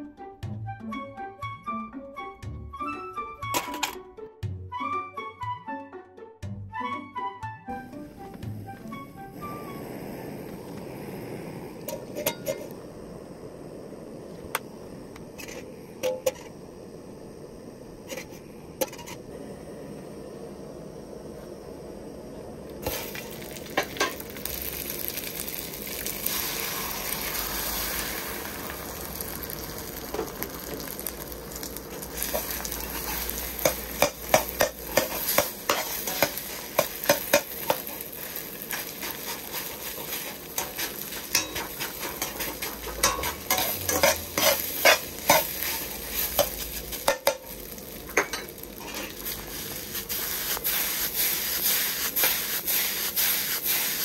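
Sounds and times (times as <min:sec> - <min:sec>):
egg and rice sizzling in a wok: 0:03.6 - 0:04.0, 0:09.3 - 0:54.0
metal ladle clacking on wok: 0:33.6 - 0:37.9, 0:40.6 - 0:45.6, 0:46.4 - 0:49.1.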